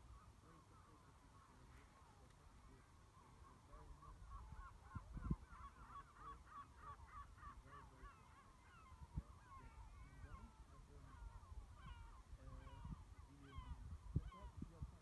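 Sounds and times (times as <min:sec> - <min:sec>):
flock of birds calling: 0:00.0 - 0:15.0
wind rumble on microphone: 0:03.7 - 0:05.7, 0:08.8 - 0:15.0.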